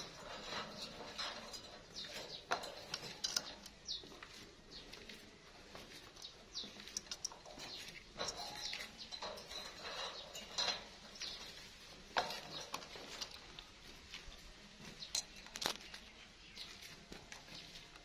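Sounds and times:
beak and feet scraping wire cage: 0.0 - 4.9, 5.9 - 13.8.

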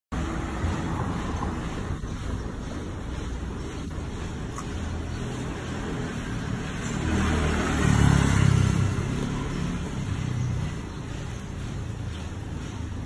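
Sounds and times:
steady background noise: 0.1 - 13.0
passing vehicle engine: 3.7 - 13.0.

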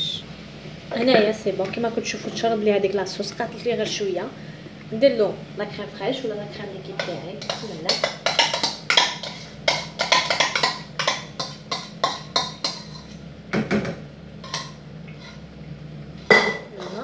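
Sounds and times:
wooden spoon knocking on a pan: 7.0 - 12.8.

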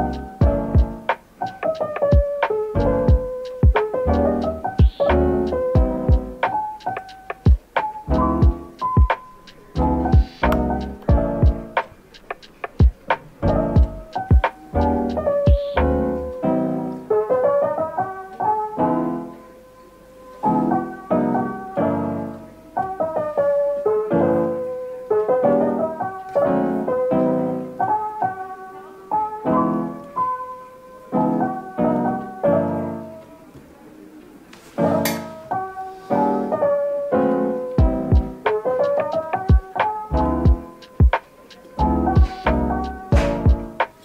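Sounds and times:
piano music: 0.0 - 44.0.

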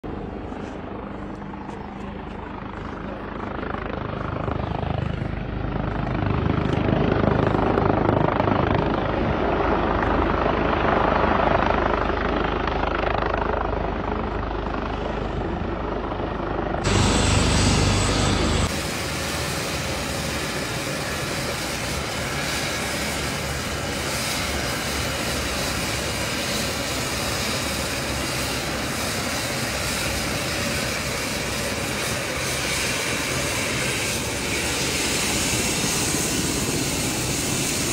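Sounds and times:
helicopter rotor beating: 0.1 - 37.9
helicopter whooshing hiss on ground: 16.8 - 37.9.

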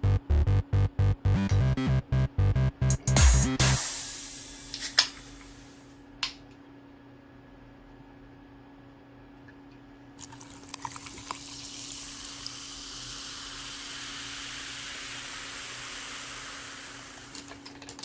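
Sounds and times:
fizzing drink pouring: 10.2 - 17.5.

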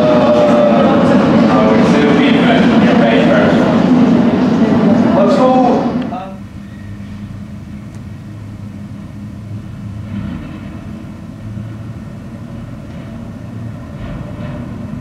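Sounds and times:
constant low hum: 0.0 - 15.0
steady low rumble: 0.0 - 15.0.

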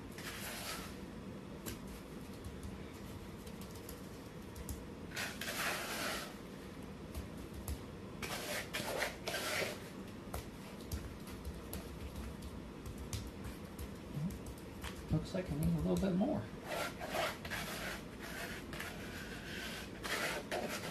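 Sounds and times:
gritty plaster scraping in tub: 0.2 - 1.0, 5.1 - 6.4, 8.2 - 9.8, 16.6 - 20.9.

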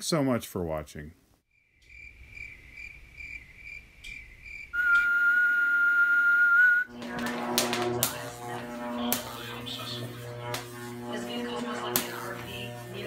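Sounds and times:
faint cricket-like chirping: 1.5 - 5.1
music: 6.9 - 13.0.

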